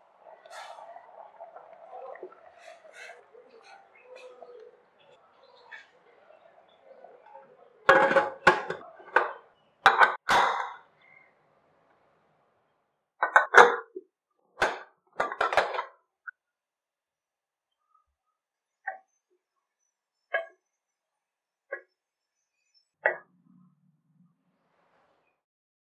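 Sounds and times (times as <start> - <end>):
pot lid clanking on metal pot: 7.9 - 10.7, 14.6 - 15.9.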